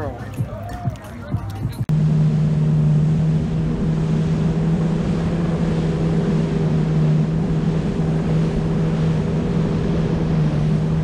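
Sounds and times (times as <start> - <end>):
jet ski engine drone: 1.9 - 11.0
wind and water spray rushing: 3.1 - 11.0.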